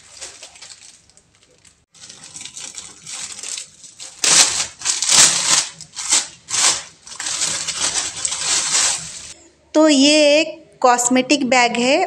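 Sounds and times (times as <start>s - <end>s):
plastic wrapper crinkling: 0.0s - 9.4s.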